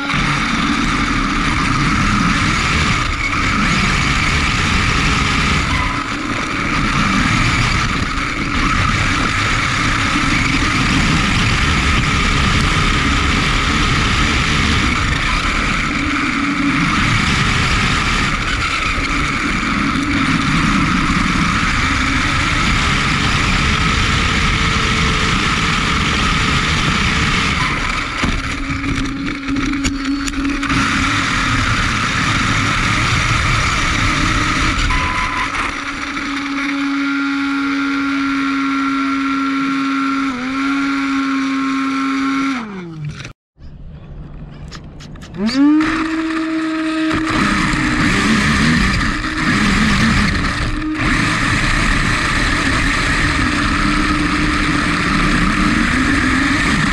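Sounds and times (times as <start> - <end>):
wind and grass noise: 0.0 - 37.5
electric motor whine: 0.0 - 43.3, 45.2 - 56.9.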